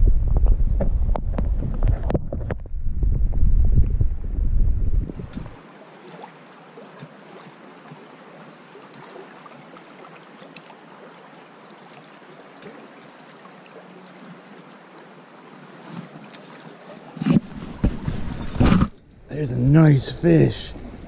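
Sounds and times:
river running over riffle: 0:05.1 - 0:21.0
faint ticks: 0:10.4 - 0:13.2.

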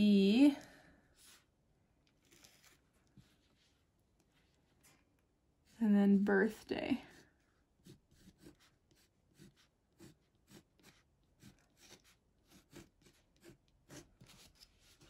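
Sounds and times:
pencil scratching on paper: 0:01.2 - 0:01.5, 0:07.0 - 0:15.0.

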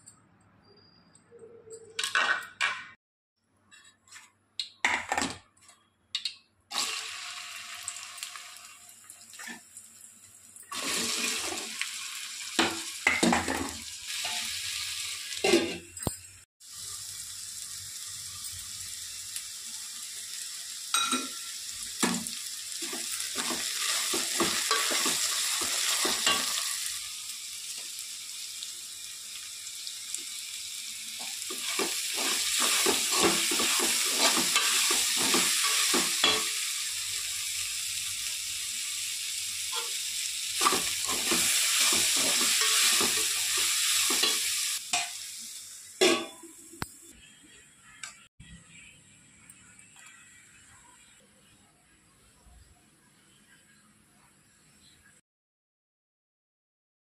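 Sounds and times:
okra sizzling in oil: 0:06.7 - 0:48.0
spoon scraping metal pan: 0:31.6 - 0:36.5.

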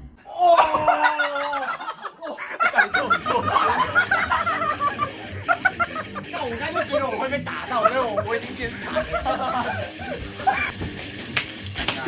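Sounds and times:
man shouting: 0:00.2 - 0:01.8
people laughing: 0:00.3 - 0:11.0.

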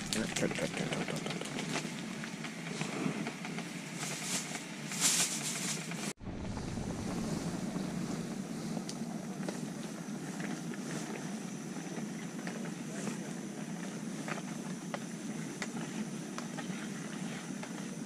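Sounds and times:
plastic packet crinkling: 0:00.0 - 0:02.0.

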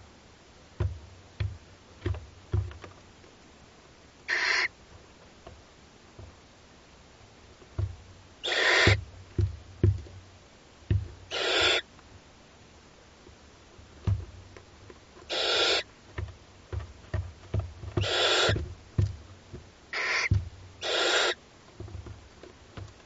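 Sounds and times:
soft low thuds of shuffling: 0:00.0 - 0:03.4, 0:04.8 - 0:06.7, 0:07.4 - 0:08.3, 0:08.9 - 0:11.3, 0:13.2 - 0:15.2, 0:15.9 - 0:20.8, 0:21.6 - 0:23.0
owl chicks rasping hisses: 0:04.3 - 0:04.7, 0:08.4 - 0:09.0, 0:11.3 - 0:11.9, 0:15.3 - 0:15.9, 0:18.0 - 0:18.6, 0:19.9 - 0:21.4.

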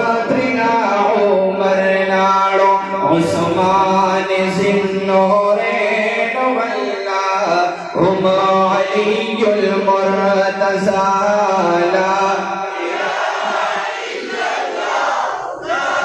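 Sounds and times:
man chanting: 0:00.0 - 0:12.8.

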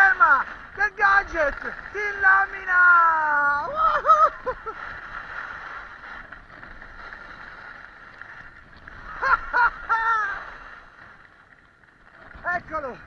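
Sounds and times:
skis scraping over snow: 0:00.0 - 0:13.0
person calling out: 0:02.0 - 0:04.2.

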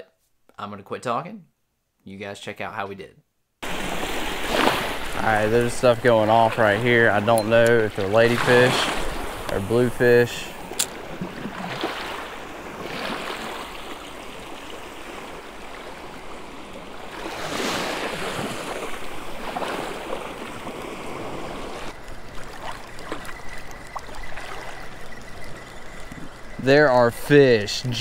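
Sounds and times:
small surf waves washing: 0:03.6 - 0:28.0
thin high tone: 0:05.2 - 0:08.8, 0:22.0 - 0:28.0
faint ticks: 0:21.9 - 0:28.0.

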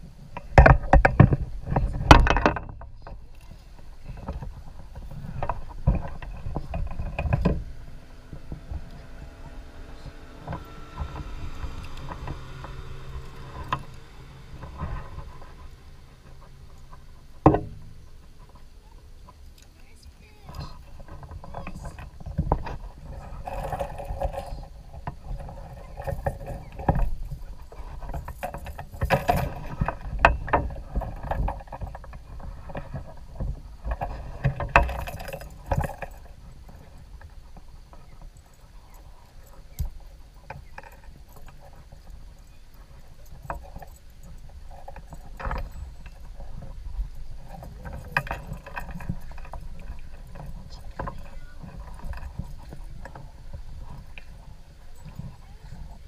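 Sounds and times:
bumps against kayak hull: 0:04.1 - 0:18.6.

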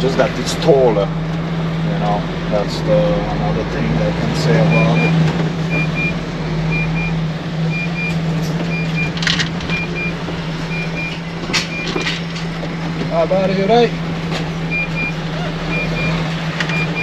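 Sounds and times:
diesel engine humming: 0:00.0 - 0:17.0
reversing alarm beeps: 0:04.6 - 0:12.1, 0:14.7 - 0:17.0.

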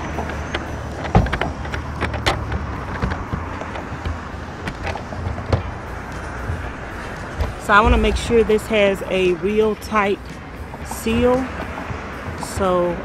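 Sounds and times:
low background rumble: 0:03.2 - 0:11.4.

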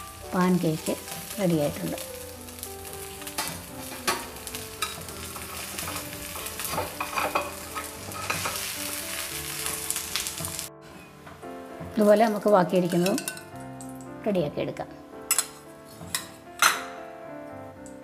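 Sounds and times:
oil sizzling in a frying pan: 0:00.0 - 0:14.4
spatula scraping and tapping pan: 0:03.3 - 0:09.0, 0:12.0 - 0:13.9, 0:15.3 - 0:16.9.

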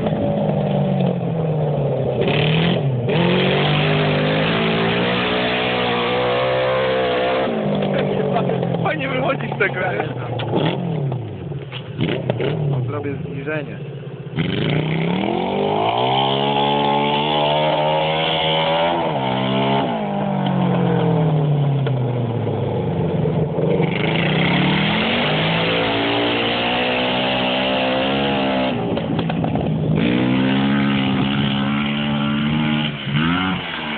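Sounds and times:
quad bike engine revving: 0:00.0 - 0:33.9.

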